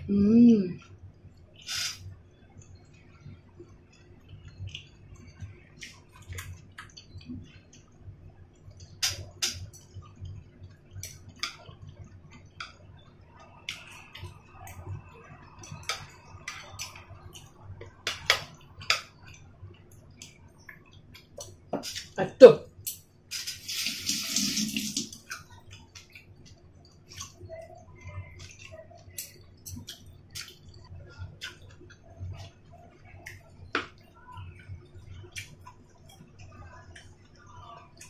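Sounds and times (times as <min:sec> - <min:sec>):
low steady hum: 0:00.0 - 0:38.0
chewing and mouth smacks: 0:02.6 - 0:14.9, 0:25.2 - 0:38.0.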